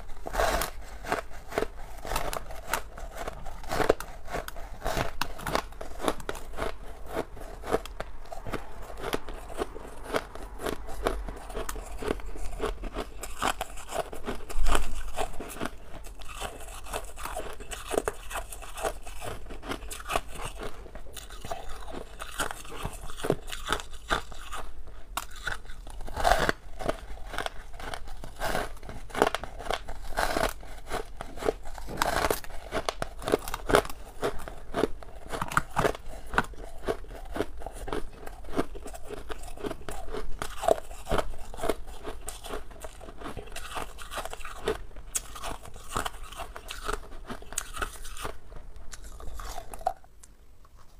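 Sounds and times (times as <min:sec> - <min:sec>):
frost crunching being chewed: 0:00.0 - 0:50.9.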